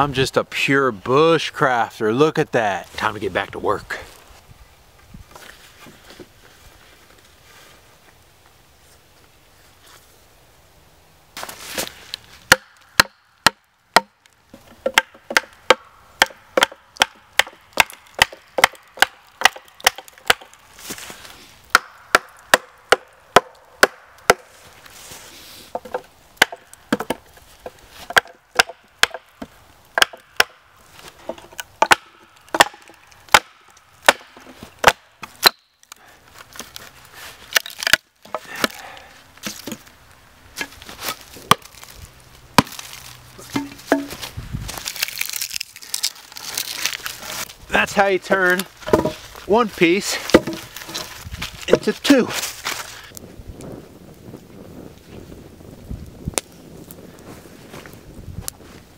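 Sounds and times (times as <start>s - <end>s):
wooden baton knocking: 43.5s - 44.2s, 48.8s - 49.2s, 50.3s - 50.6s.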